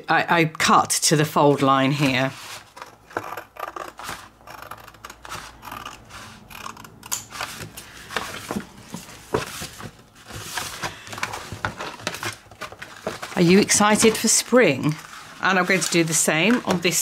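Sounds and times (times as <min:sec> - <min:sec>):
paper rustling: 0:01.4 - 0:03.0, 0:03.8 - 0:04.3, 0:07.3 - 0:17.0
scissors snipping paper: 0:02.1 - 0:07.8.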